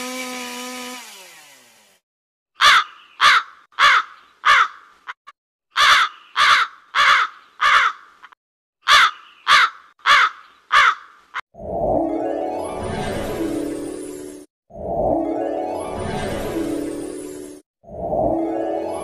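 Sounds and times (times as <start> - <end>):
crow cawing: 2.6 - 4.9, 5.7 - 11.2.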